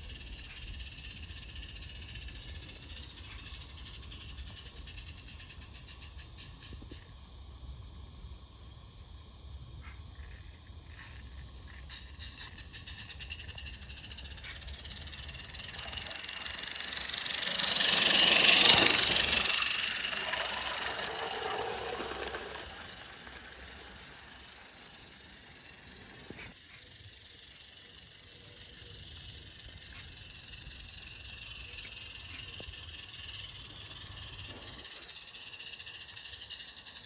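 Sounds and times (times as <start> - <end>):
model train running past: 12.0 - 37.0.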